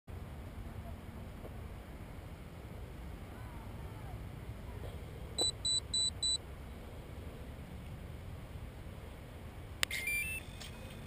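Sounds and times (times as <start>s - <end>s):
short high beeps: 5.4s - 6.4s, 9.9s - 10.5s.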